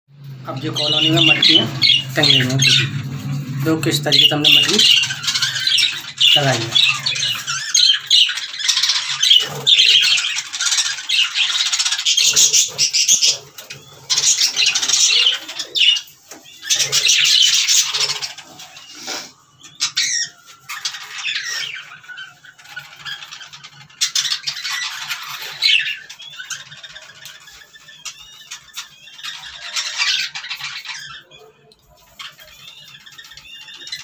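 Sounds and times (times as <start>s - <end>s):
budgerigars chattering: 0.4s - 34.0s.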